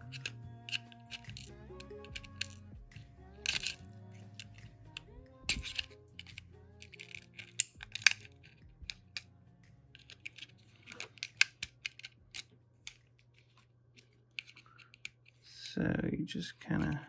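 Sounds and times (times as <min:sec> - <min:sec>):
metal pry tool clicking and scraping: 0:00.0 - 0:02.6, 0:03.4 - 0:09.3, 0:10.0 - 0:13.0, 0:14.0 - 0:15.7.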